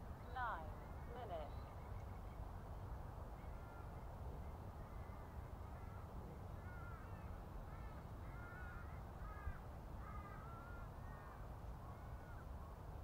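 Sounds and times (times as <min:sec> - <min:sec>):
crow-like bird calls: 0:03.4 - 0:12.6.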